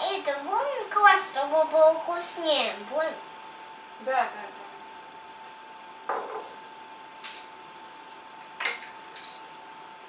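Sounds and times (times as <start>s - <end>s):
faint high hum: 0.0s - 10.0s
utensils knocking against a bowl: 6.1s - 6.5s.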